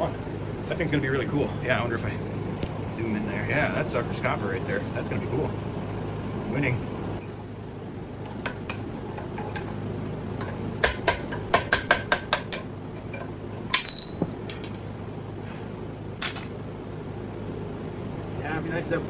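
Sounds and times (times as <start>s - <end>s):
hammer striking steel bar: 10.8s - 12.7s
metal clank with ringing note: 13.6s - 14.4s.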